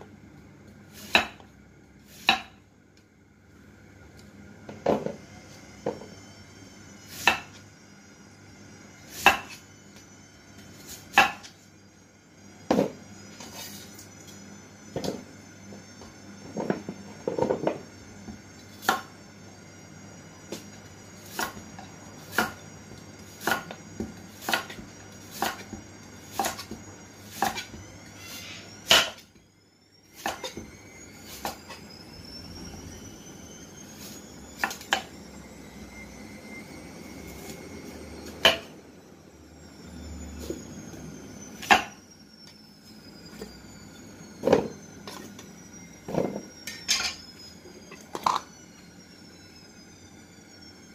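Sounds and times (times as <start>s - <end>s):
cleaver chopping on a board: 1.1s - 1.4s, 2.2s - 2.5s, 11.1s - 11.4s.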